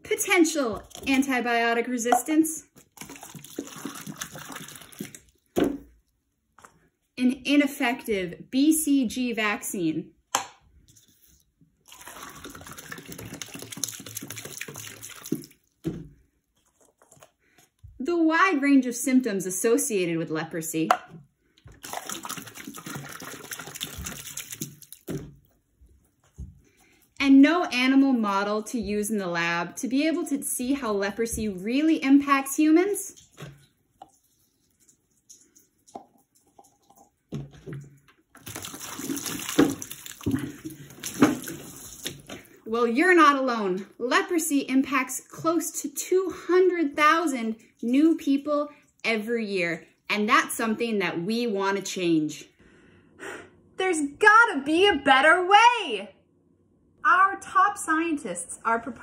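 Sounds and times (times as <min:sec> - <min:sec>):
water pouring into cup: 0:02.8 - 0:05.4, 0:11.8 - 0:15.8, 0:21.8 - 0:25.1, 0:34.0 - 0:42.4.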